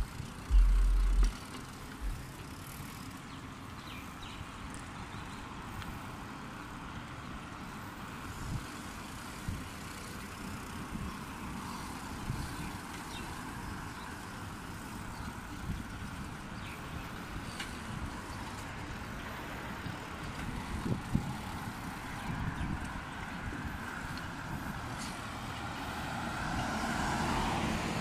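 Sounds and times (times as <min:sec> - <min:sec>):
wind buffeting microphone: 0:00.0 - 0:01.4, 0:19.1 - 0:25.0
soft bumps: 0:00.0 - 0:02.3
bike tyres rolling on pavement: 0:00.0 - 0:28.0
road traffic: 0:00.0 - 0:28.0.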